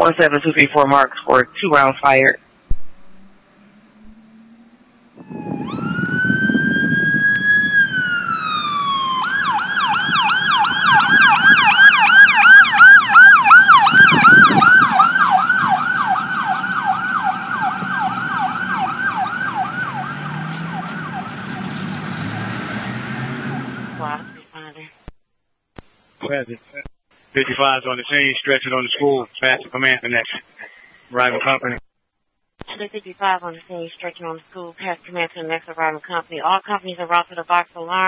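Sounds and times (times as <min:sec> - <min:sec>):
vehicle and road noise: 0:02.4 - 0:24.4
electronic siren wailing and yelping: 0:03.1 - 0:24.5.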